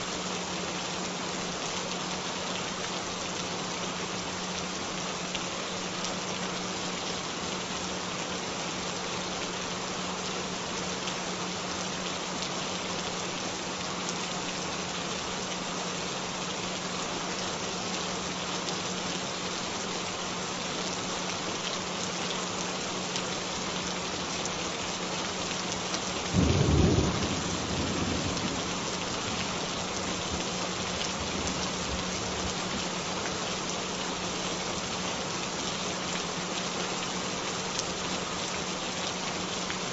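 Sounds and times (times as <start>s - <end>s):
steady rainfall: 0.0s - 39.9s
thunder rumble: 26.4s - 29.7s.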